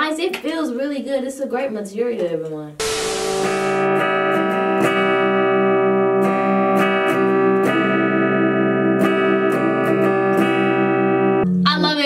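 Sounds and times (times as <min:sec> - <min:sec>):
electric guitar chords: 0:02.8 - 0:12.0.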